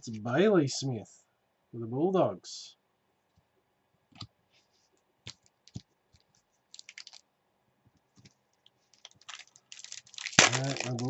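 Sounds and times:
trading cards clicking and rustling: 5.3s - 7.2s, 9.0s - 11.0s.

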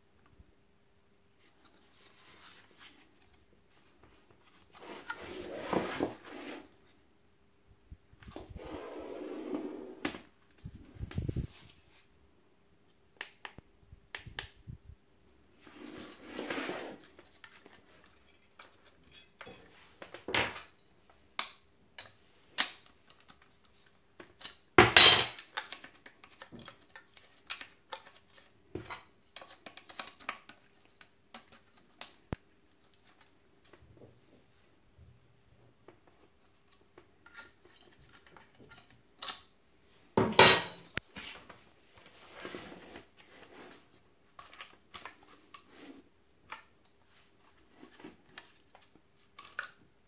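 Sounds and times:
jigsaw being handled: 25.3s - 33.8s, 40.9s - 49.8s.

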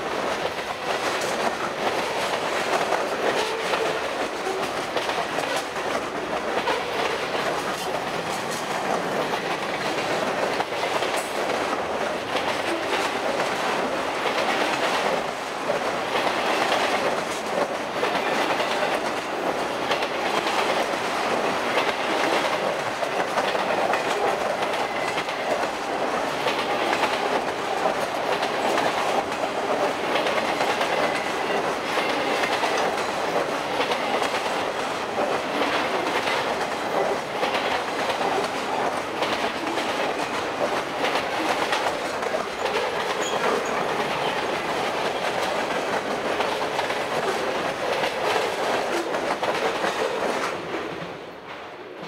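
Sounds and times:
train wheels clicking over rails: 0.0s - 52.0s.

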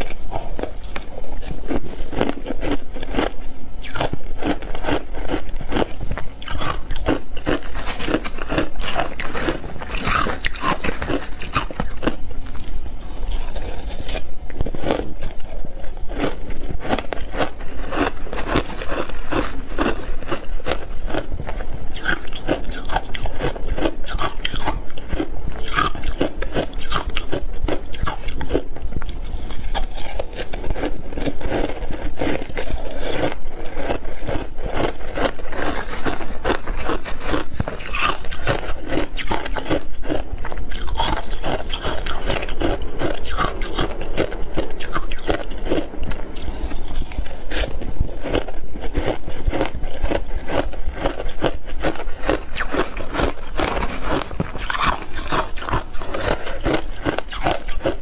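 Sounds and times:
crunching and chewing ice: 0.0s - 58.0s.

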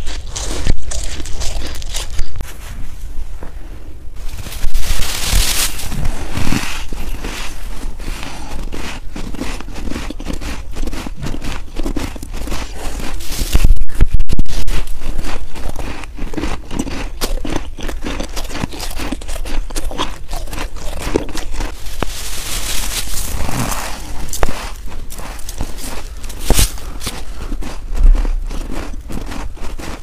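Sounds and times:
chewing snow crunches: 0.0s - 2.7s, 4.2s - 30.0s
low rumble on microphone: 22.0s - 29.2s.

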